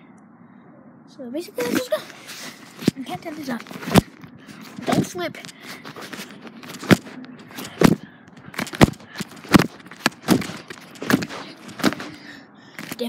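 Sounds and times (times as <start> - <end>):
phone jostling thumps: 6.0 - 12.2.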